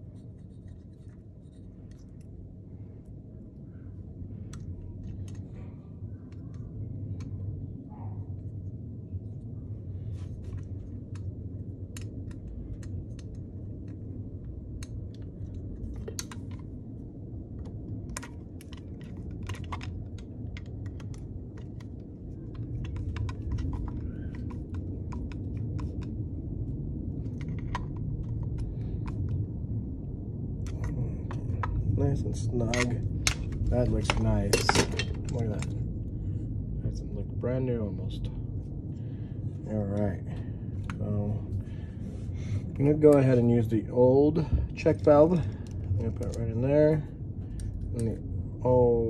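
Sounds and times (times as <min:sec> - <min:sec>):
steady low hum: 0:00.0 - 0:49.0
screwdriver clicks and metal taps: 0:32.6 - 0:35.7.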